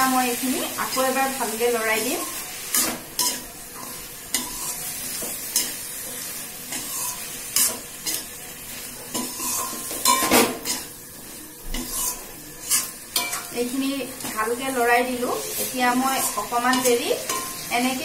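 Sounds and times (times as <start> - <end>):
frying oil sizzling: 0.0 - 18.0
metal spatula scraping metal pan: 2.2 - 5.8, 6.7 - 8.3, 9.1 - 10.9, 11.8 - 13.5, 15.3 - 18.0.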